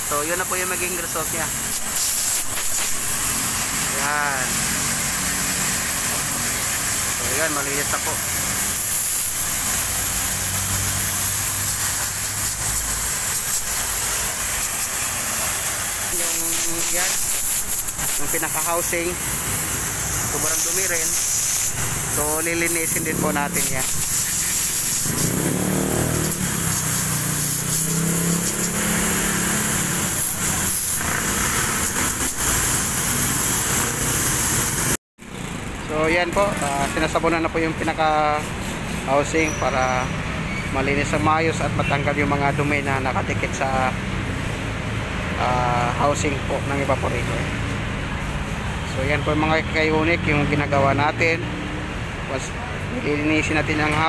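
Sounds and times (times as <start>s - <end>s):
hose water jet hissing: 0.0s - 35.0s, 35.9s - 54.0s.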